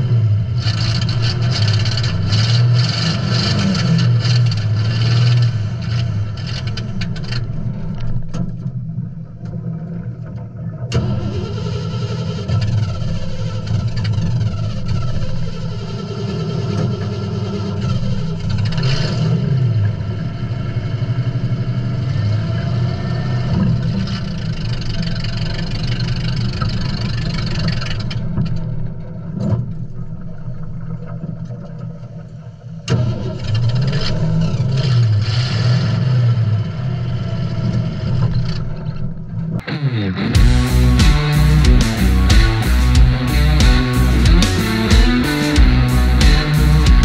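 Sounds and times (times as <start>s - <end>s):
vehicle engine revving: 0.0s - 7.4s, 39.6s - 47.0s.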